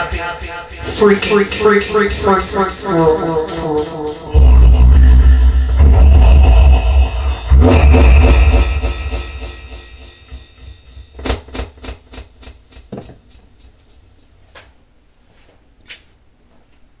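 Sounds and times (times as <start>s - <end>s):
voice echo effect: 0.0s - 9.0s
faint steady high tone: 0.0s - 14.8s.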